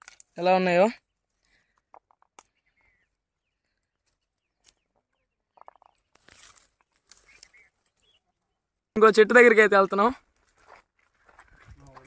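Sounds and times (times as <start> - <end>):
faint bird calls: 1.5 - 6.3, 7.0 - 8.6.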